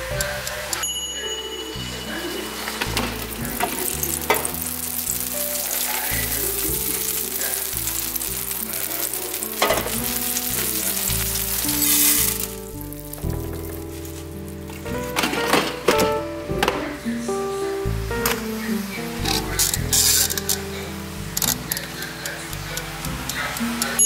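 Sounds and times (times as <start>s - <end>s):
butter sizzling and crackling: 2.4s - 15.4s, 17.8s - 24.0s.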